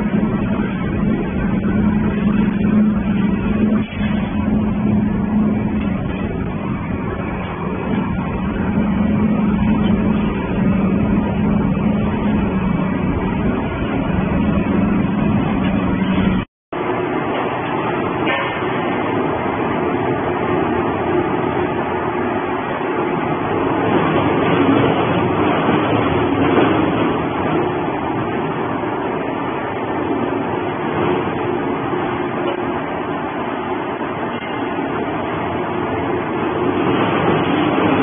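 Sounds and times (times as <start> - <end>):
industrial shredder running: 0.0 - 22.3.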